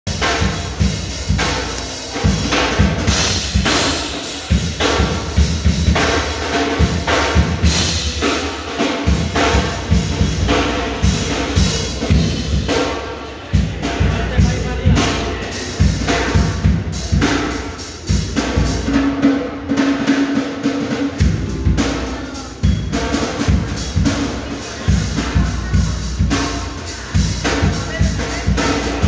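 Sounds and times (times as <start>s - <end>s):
music with drum-kit beat: 0.1s - 29.0s.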